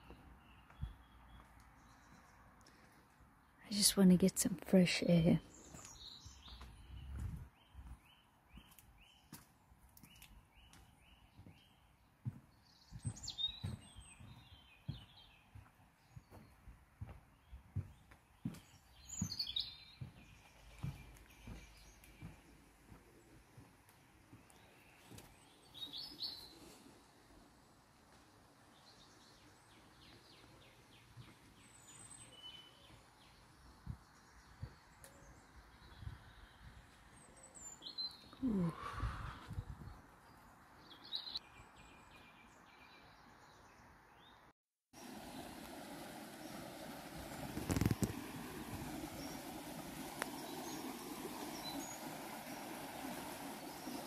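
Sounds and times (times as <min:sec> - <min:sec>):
bird singing varied high song: 0:00.0 - 0:02.6, 0:03.6 - 0:23.7, 0:24.3 - 0:26.8, 0:28.7 - 0:44.5, 0:50.2 - 0:52.3
footsteps on wet wooden decking: 0:00.0 - 0:03.6, 0:05.4 - 0:27.4, 0:28.0 - 0:39.6
soft footstep thumps: 0:06.5 - 0:08.0, 0:10.1 - 0:25.3.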